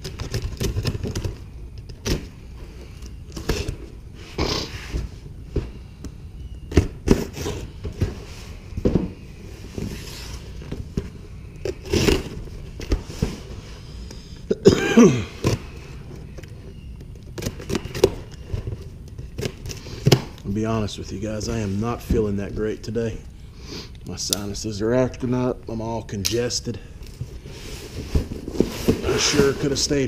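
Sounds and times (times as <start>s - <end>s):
person coughing: 14.5s - 15.4s.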